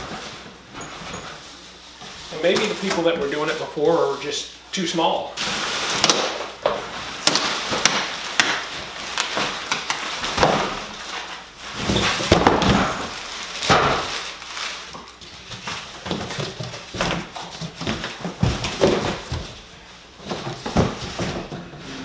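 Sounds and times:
cardboard scraping and rustling: 0:06.7 - 0:22.0.

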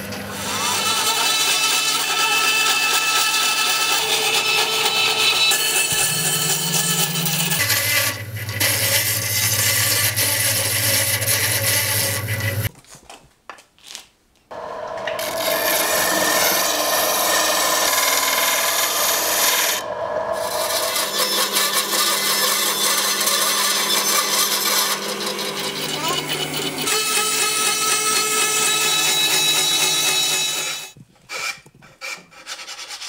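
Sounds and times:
bandsaw cutting wood: 0:00.2 - 0:12.7, 0:14.5 - 0:33.0
disc sander grinding wood: 0:00.3 - 0:12.7, 0:14.5 - 0:31.4.

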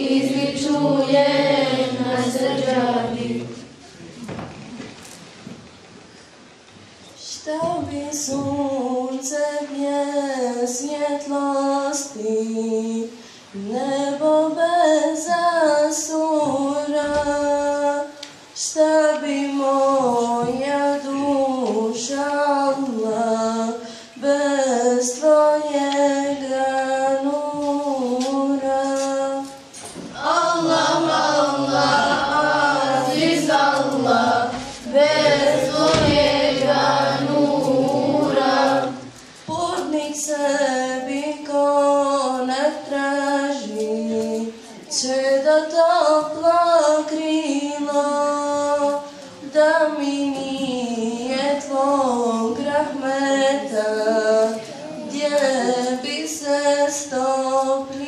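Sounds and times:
girls singing in chorus: 0:00.0 - 0:03.8, 0:07.5 - 0:58.0
girl singing into a microphone: 0:07.2 - 0:30.7, 0:38.9 - 0:58.0.

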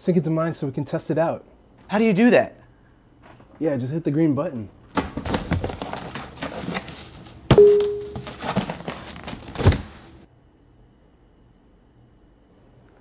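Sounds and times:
box rustling: 0:05.1 - 0:10.1.

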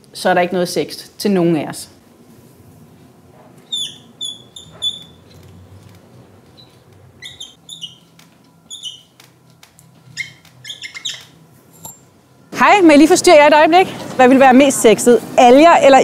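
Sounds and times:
marker squeaking on whiteboard: 0:03.6 - 0:09.4, 0:10.0 - 0:11.4.

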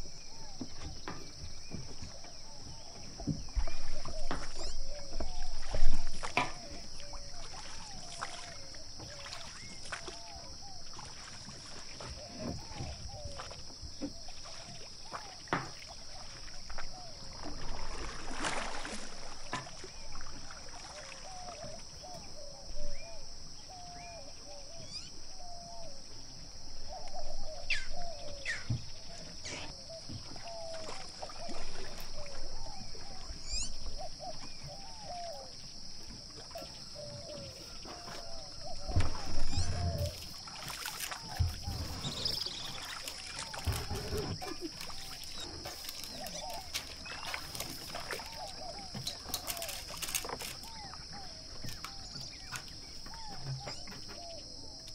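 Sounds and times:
wavering animal calls: 0:20.1 - 0:54.8.

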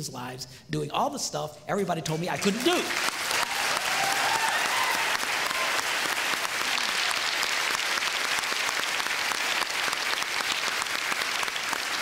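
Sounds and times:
audience applauding: 0:02.4 - 0:12.0.

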